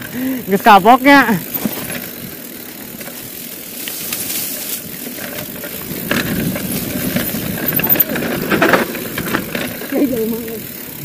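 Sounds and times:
bike rattling over bumps: 0.0 - 11.0
bike tyres rumbling on dirt: 0.0 - 11.0
wind noise on microphone: 4.9 - 9.8.

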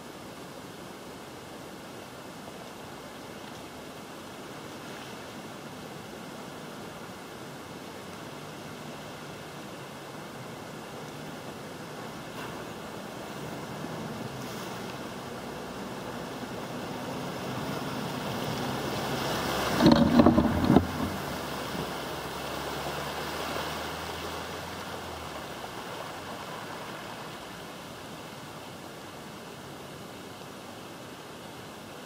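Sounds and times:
water splashing and rushing: 0.0 - 32.0
wake washing: 8.0 - 27.8
vehicle engine droning: 12.3 - 26.7.

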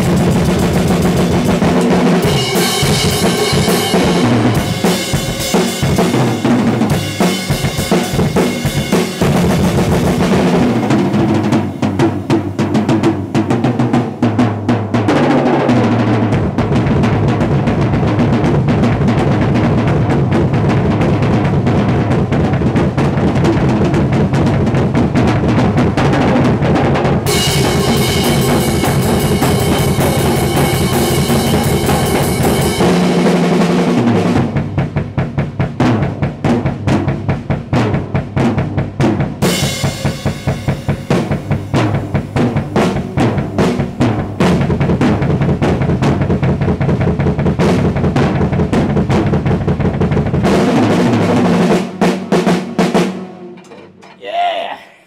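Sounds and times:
fast metal drumming: 0.0 - 54.8
cymbal wash: 2.2 - 13.2.

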